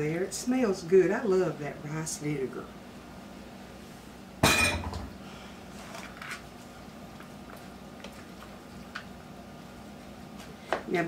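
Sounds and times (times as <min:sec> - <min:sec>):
dish clinking on counter: 0:04.4 - 0:05.1.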